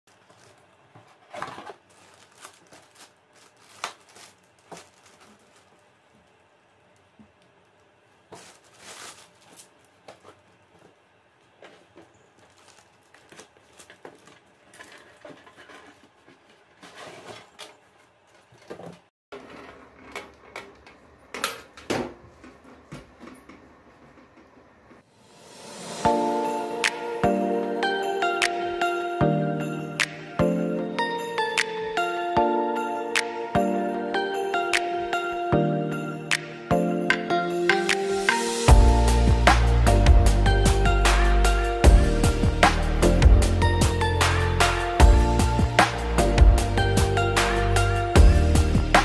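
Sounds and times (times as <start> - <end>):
hands handling cardboard boxes: 8.3 - 17.6.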